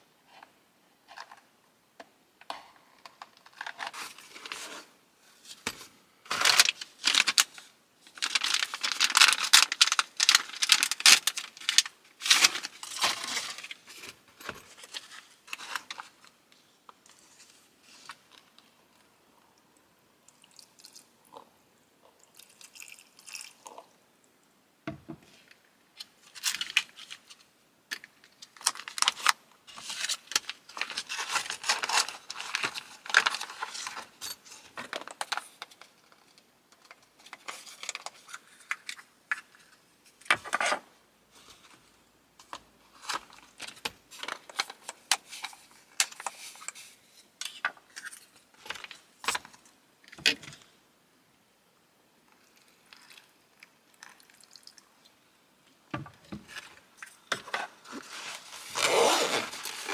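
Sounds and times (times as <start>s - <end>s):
food packaging crinkling and tearing: 3.1s - 4.9s, 5.6s - 16.3s, 26.1s - 27.5s, 28.3s - 39.8s, 42.5s - 50.4s, 56.5s - 59.9s.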